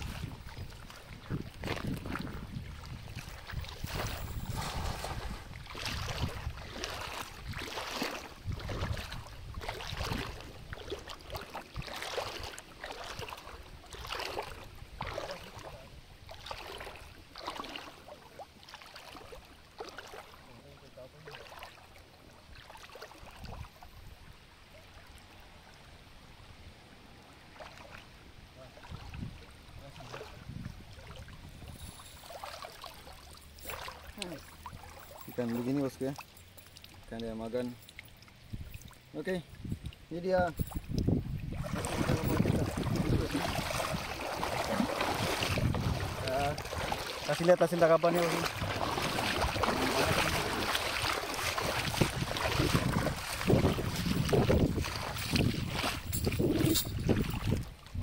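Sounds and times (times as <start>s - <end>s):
wind on microphone: 0.0s - 16.4s, 23.3s - 24.4s, 28.8s - 32.1s, 38.4s - 47.2s, 48.4s - 58.0s
river water splashing: 0.0s - 58.0s.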